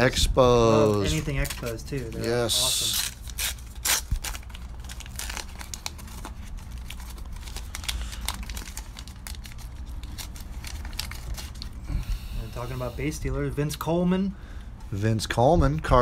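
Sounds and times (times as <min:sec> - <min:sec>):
wrapper crinkling and tearing: 0:00.8 - 0:11.8.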